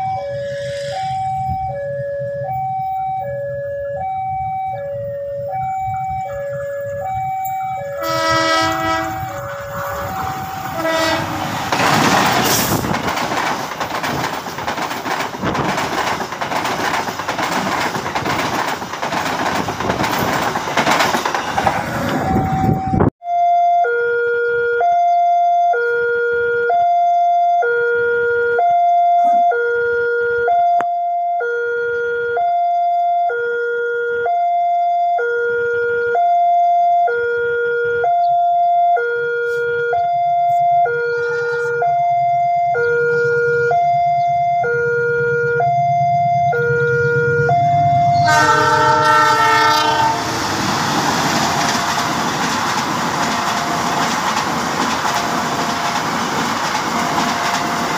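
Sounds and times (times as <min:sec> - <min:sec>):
level crossing two-tone alarm: 0:00.0 - 0:11.2, 0:22.2 - 0:50.1
locomotive horn: 0:00.0 - 0:11.8, 0:23.8 - 0:50.7
approaching train rumble: 0:00.0 - 0:23.1, 0:40.5 - 0:57.9
passing train rushing: 0:00.0 - 0:23.1, 0:40.7 - 0:57.9.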